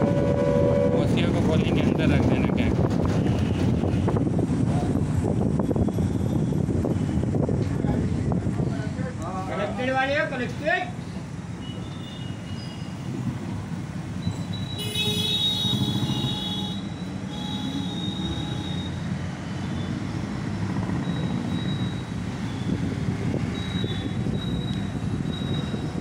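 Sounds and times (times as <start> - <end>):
bus engine and road rumble: 0.0 - 26.0
loud high squeal: 11.6 - 13.2, 14.2 - 20.0, 21.0 - 26.0.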